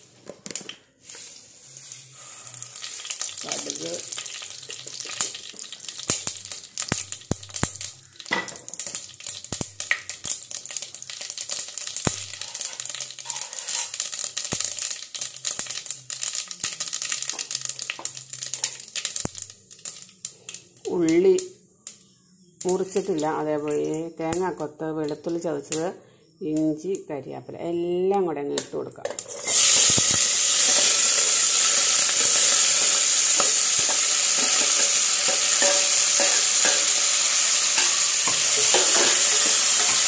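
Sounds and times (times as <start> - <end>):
mustard seeds spluttering in oil: 0.4 - 21.5, 29.2 - 40.0.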